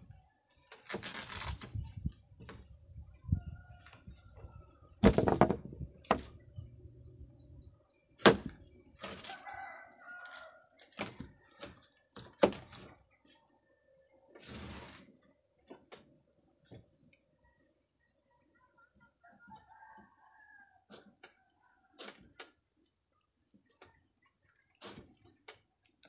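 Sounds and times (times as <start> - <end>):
rooster crowing: 9.3 - 10.8, 19.2 - 20.9.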